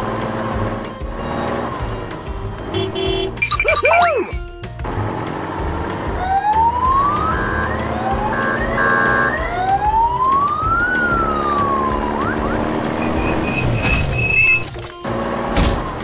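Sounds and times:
background music: 0:00.0 - 0:16.0
siren wail: 0:06.2 - 0:14.6.

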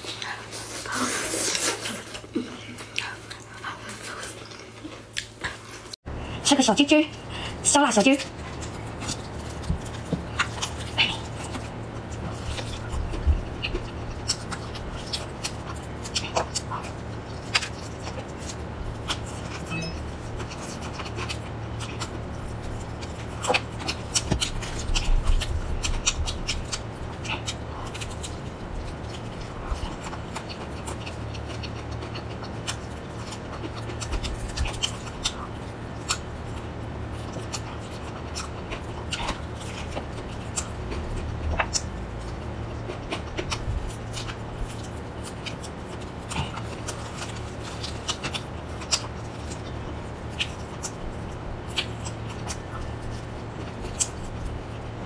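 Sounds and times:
steady low hum: 0:00.0 - 0:55.0
fried chicken crust crackling: 0:07.2 - 0:55.0
crunchy chewing: 0:08.2 - 0:55.0.

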